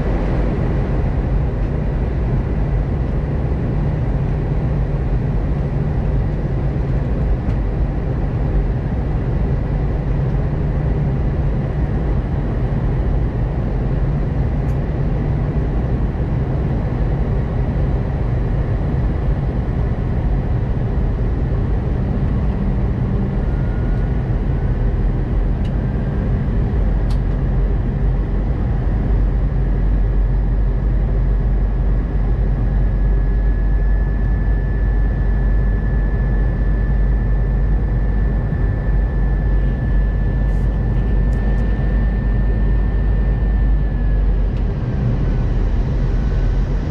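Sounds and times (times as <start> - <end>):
aircraft cabin engine rumble: 0.0 - 46.9
faint engine whine rising: 16.7 - 46.9.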